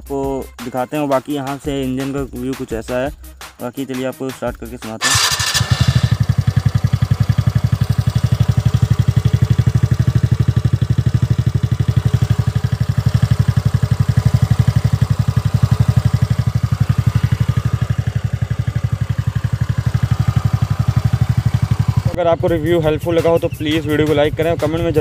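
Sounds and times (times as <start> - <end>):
scooter engine idling: 5.0 - 25.0.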